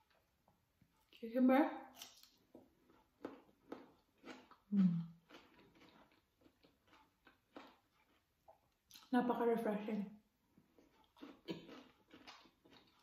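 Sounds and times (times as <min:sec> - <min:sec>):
cucumber crunching when chewed: 0:01.9 - 0:09.1, 0:10.7 - 0:13.0
person humming mm: 0:04.7 - 0:05.1.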